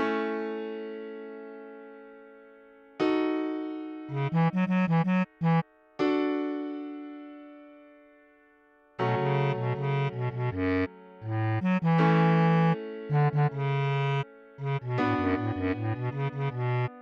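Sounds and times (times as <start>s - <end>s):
electric piano chords: 9.0s - 17.0s.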